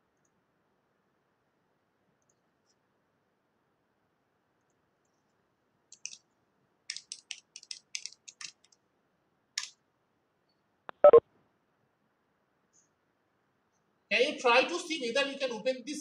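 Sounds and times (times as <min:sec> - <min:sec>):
keyboard key clicks: 0:06.9 - 0:08.8.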